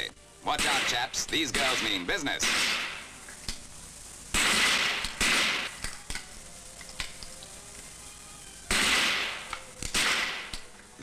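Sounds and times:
rifle shot crack: 0:00.5 - 0:03.7, 0:04.3 - 0:06.3, 0:08.7 - 0:10.7.

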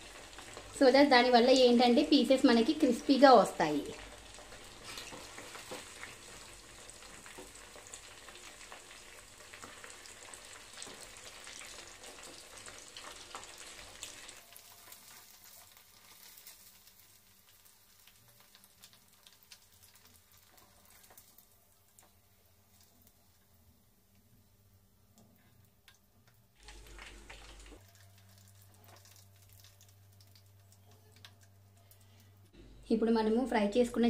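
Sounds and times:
chicken deep-frying in hot oil: 0:00.0 - 0:32.5.

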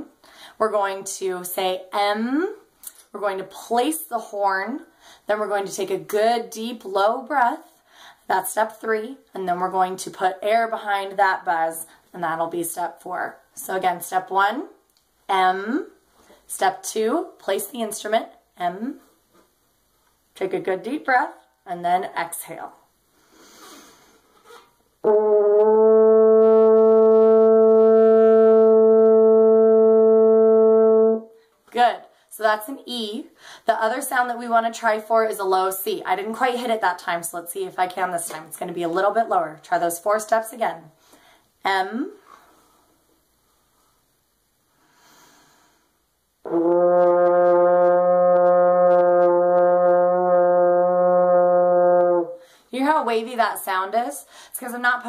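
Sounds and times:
french horn long steady note: 0:25.0 - 0:31.4, 0:46.4 - 0:52.4.

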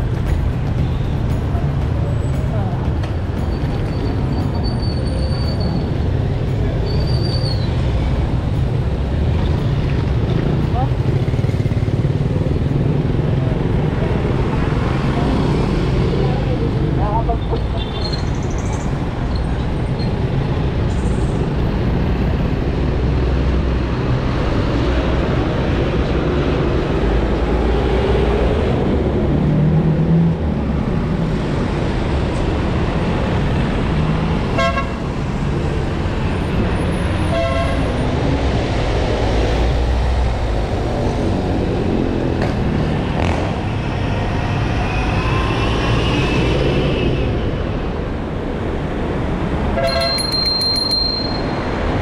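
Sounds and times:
passing traffic rumble: 0:00.0 - 0:52.0
vehicle horn toots: 0:34.6 - 0:35.0, 0:37.3 - 0:37.9, 0:49.8 - 0:50.4.

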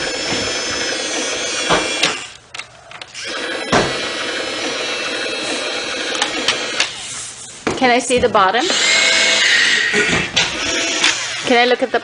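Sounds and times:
toy excavator motor whirring: 0:00.0 - 0:02.4, 0:03.0 - 0:07.2, 0:08.6 - 0:12.0.

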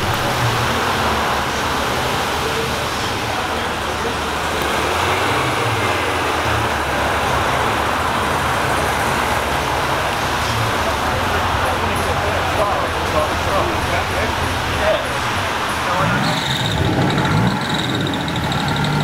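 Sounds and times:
vehicle rumble: 0:00.0 - 0:19.0.

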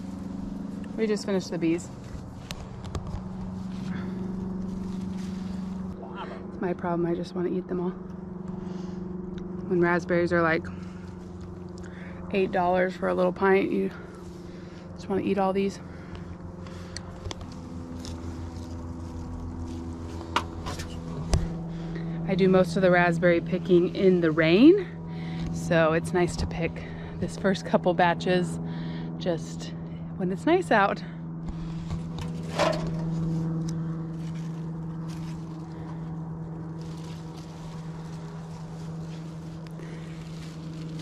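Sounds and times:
leaves rustling: 0:00.0 - 0:06.4, 0:16.7 - 0:21.9, 0:31.6 - 0:41.0
steady motor drone: 0:00.0 - 0:41.0.

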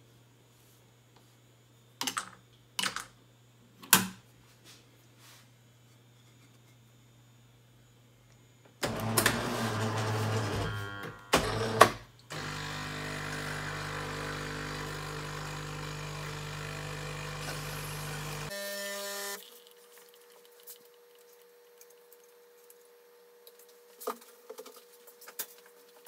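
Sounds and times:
coffee machine pump humming: 0:08.8 - 0:21.5.

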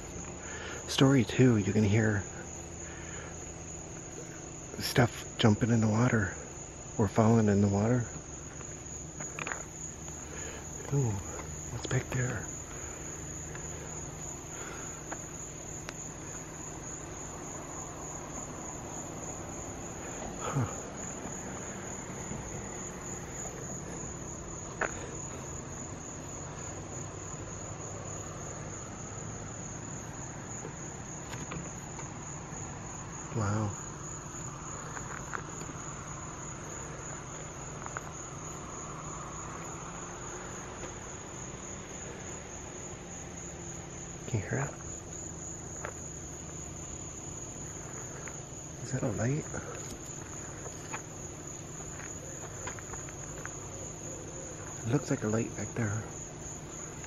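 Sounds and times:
crickets chirring: 0:00.0 - 0:57.0.

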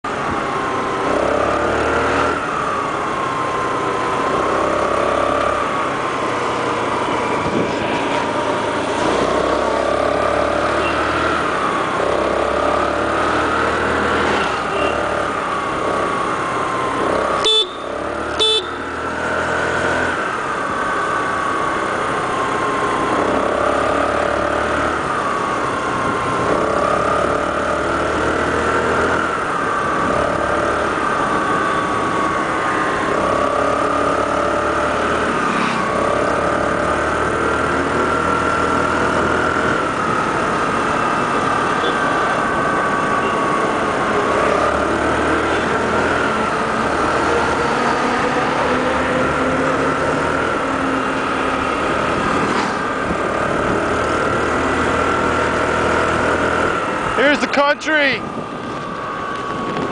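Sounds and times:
motor scooter engine revving: 0:00.5 - 0:57.4
horn beeps: 0:17.4 - 0:18.9.

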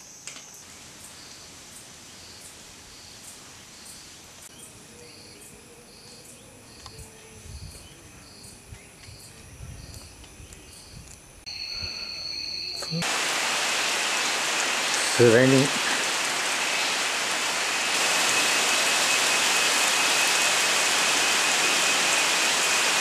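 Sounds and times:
insects chirping: 0:00.0 - 0:23.0
high insect drone: 0:07.1 - 0:23.0.

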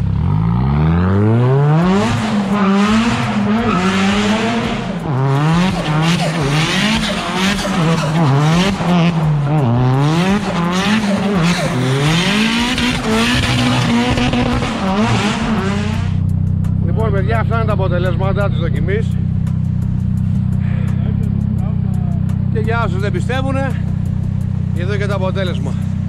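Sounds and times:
car engine revving hard: 0:00.0 - 0:16.3
tyres squealing: 0:02.5 - 0:04.7.

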